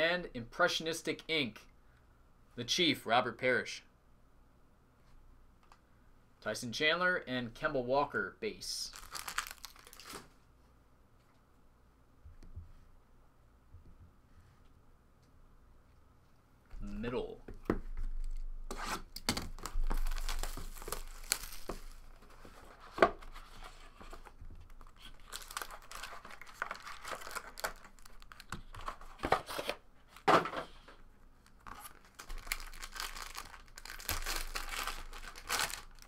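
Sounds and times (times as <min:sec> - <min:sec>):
plastic wrap crinkling: 0:08.8 - 0:10.3, 0:19.3 - 0:22.7, 0:24.2 - 0:29.7, 0:31.4 - 0:36.0.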